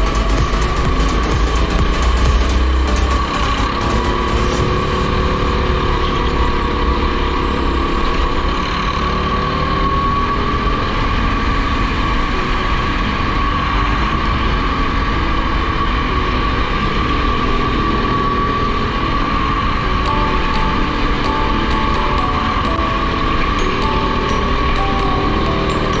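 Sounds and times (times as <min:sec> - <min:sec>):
go-kart engine whine: 0:00.0 - 0:26.0
wind and tyre rumble: 0:04.4 - 0:20.0.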